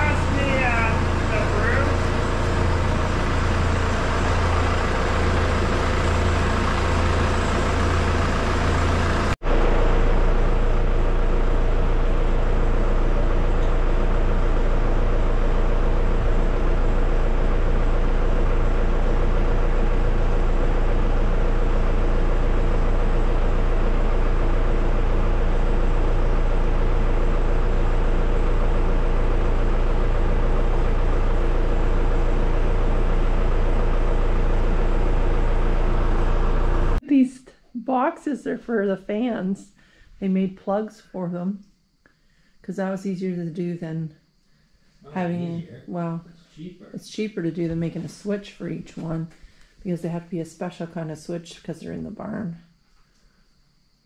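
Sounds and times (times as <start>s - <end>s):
running machinery drone: 0.0s - 37.0s.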